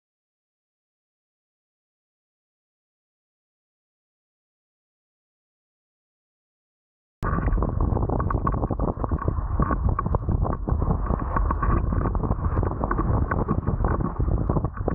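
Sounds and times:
wind rushing over microphone: 0:07.2 - 0:14.9.

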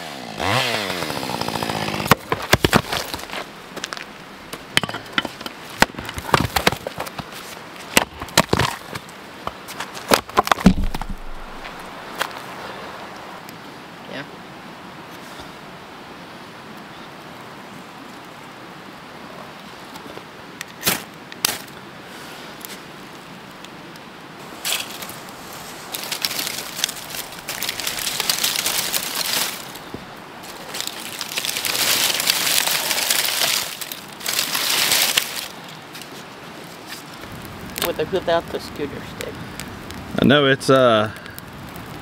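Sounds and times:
twigs and leaves crackling: 0:00.2 - 0:13.3, 0:24.4 - 0:40.2.

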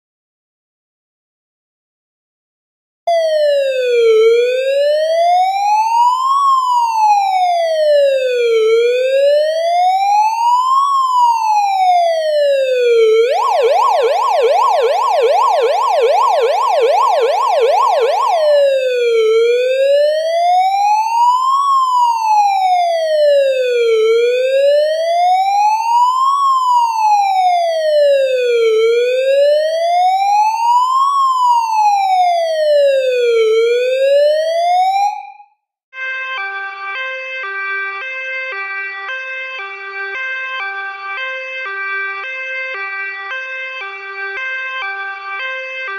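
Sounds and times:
police siren wailing and yelping: 0:03.1 - 0:35.4.

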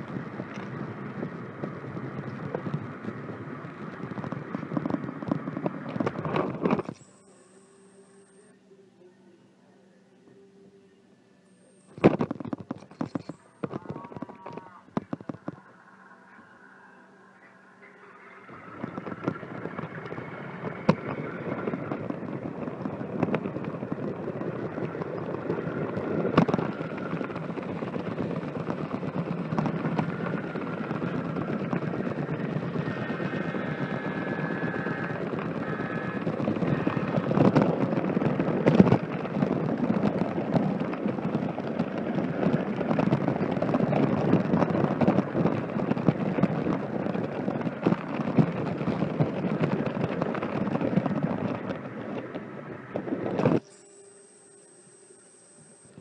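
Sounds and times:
high whine: 0:00.0 - 0:56.0
model train rattling rumble: 0:18.1 - 0:53.6.

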